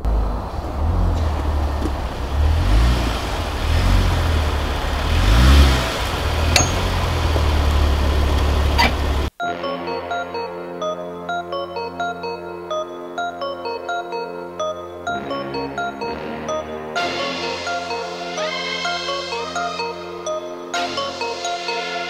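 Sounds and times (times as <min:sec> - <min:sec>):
car engine revving: 0:00.0 - 0:09.4
sharp knocks: 0:06.5 - 0:07.1.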